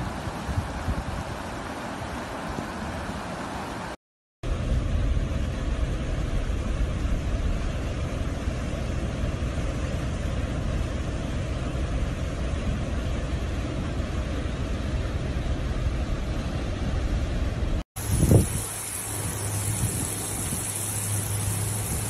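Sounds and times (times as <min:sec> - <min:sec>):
floodwater rushing: 0:00.0 - 0:04.0, 0:18.0 - 0:22.0.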